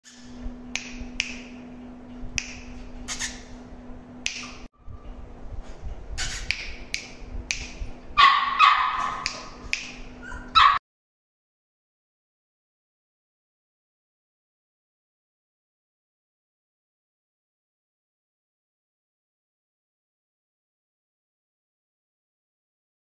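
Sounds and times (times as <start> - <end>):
steady low hum: 0.0 - 10.8
puppy yipping and whimpering: 10.2 - 10.8.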